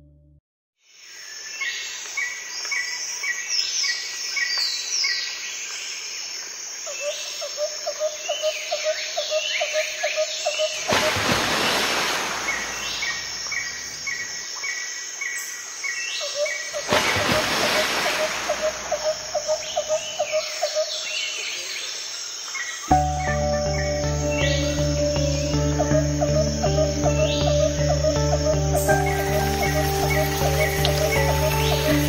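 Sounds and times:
insect drone: 0:00.9 - 0:32.0
birds chirping: 0:10.4 - 0:14.4, 0:16.2 - 0:22.0, 0:22.6 - 0:32.0
sweeping bird whistles: 0:28.8 - 0:32.0.

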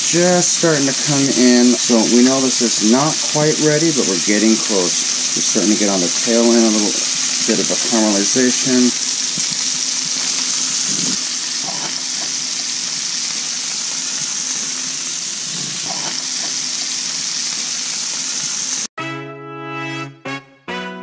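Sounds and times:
food sizzling in hot oil: 0:00.0 - 0:18.9
music: 0:19.0 - 0:21.0.

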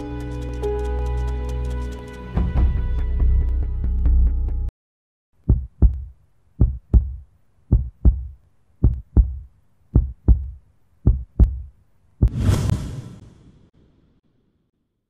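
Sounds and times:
heartbeat thumps: 0:05.5 - 0:12.4.

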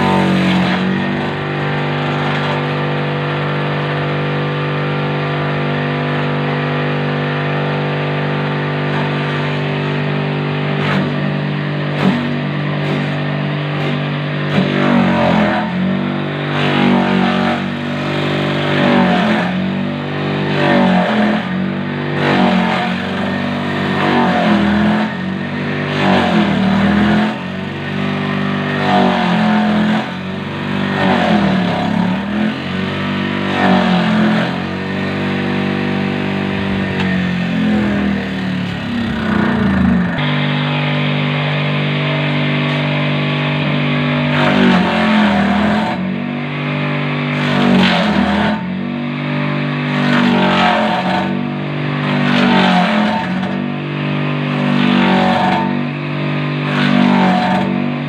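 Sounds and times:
electric motor humming: 0:08.9 - 0:48.5.

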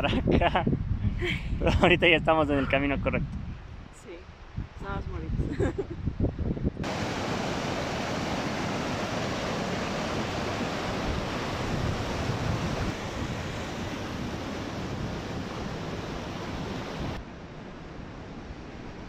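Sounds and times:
stream rushing over rocks: 0:06.8 - 0:17.2.

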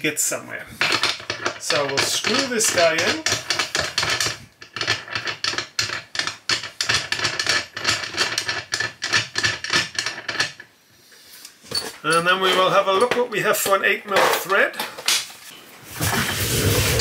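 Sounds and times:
metallic clicking and scraping: 0:00.8 - 0:10.7.

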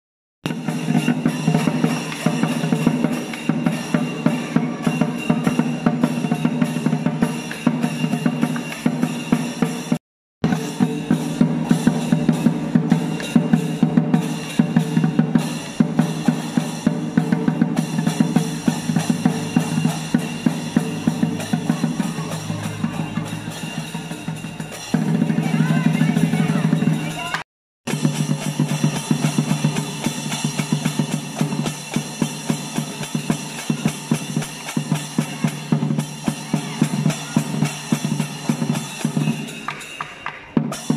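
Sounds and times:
drum beaten in fast strokes: 0:00.4 - 0:40.9
cymbals ringing: 0:00.5 - 0:40.9.

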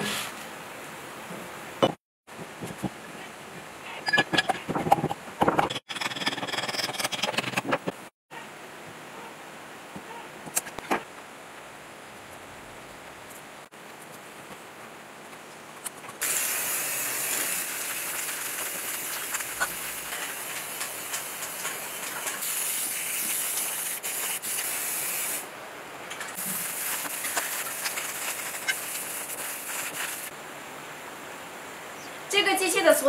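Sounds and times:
spray can hissing: 0:16.2 - 0:25.4, 0:26.4 - 0:30.3.

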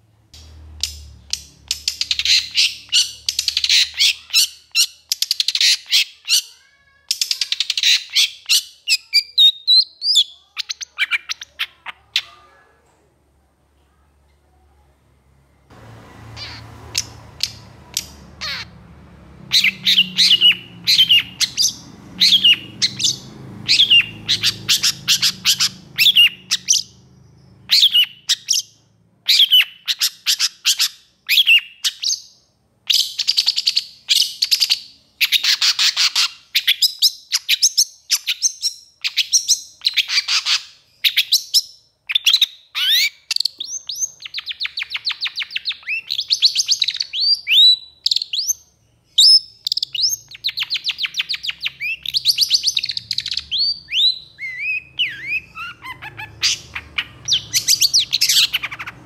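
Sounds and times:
bird scratchy chattering: 0:16.4 - 0:18.7.

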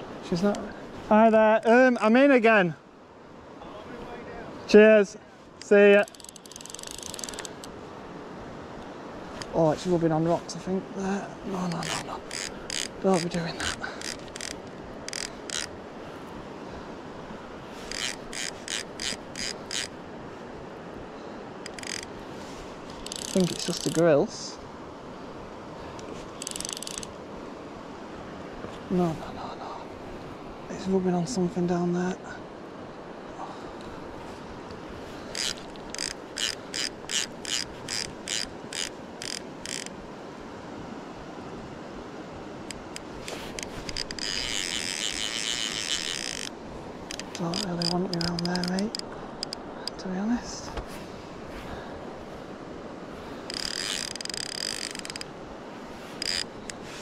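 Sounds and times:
fishing reel ratchet rasping: 0:06.0 - 0:07.7, 0:11.8 - 0:15.7, 0:17.8 - 0:20.0, 0:21.7 - 0:22.1, 0:23.0 - 0:24.0, 0:26.4 - 0:27.1, 0:35.2 - 0:40.0, 0:42.7 - 0:50.0, 0:53.4 - 0:55.3, 0:56.2 - 0:56.8.

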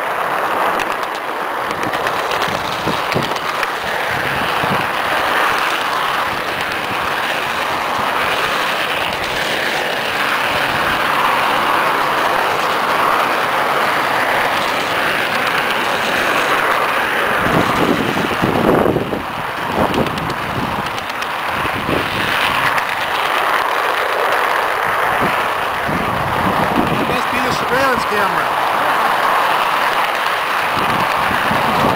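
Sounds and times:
model train wheels rumbling on rails: 0:00.0 - 0:31.9
train wheels clattering: 0:00.8 - 0:18.7.

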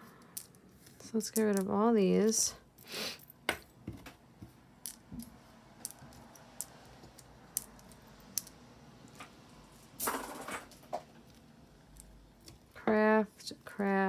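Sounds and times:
jewelry clicking: 0:00.1 - 0:03.7, 0:04.8 - 0:09.2, 0:11.2 - 0:12.8.

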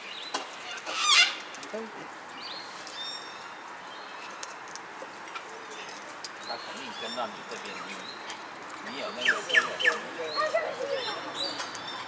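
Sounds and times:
cockatoo screeching: 0:00.6 - 0:01.4.

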